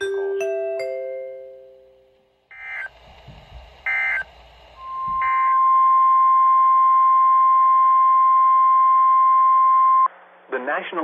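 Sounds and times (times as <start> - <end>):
loud steady attention tone: 0.0 - 10.1
warbling data bursts: 2.5 - 3.1, 3.8 - 5.7.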